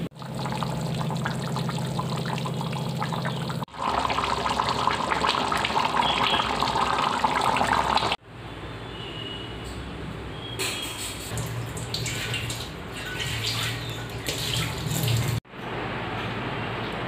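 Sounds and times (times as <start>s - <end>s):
curry bubbling and popping: 0.0s - 8.2s.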